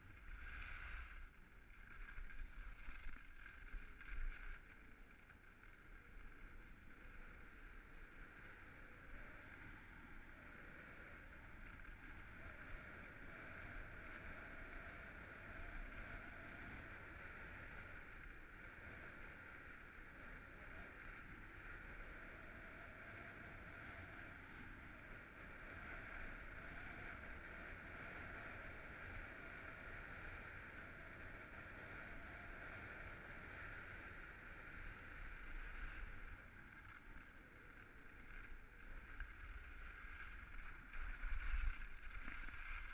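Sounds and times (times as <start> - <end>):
wind rumble on microphone: 0.0 - 42.9
skis hissing on snow: 39.2 - 42.9.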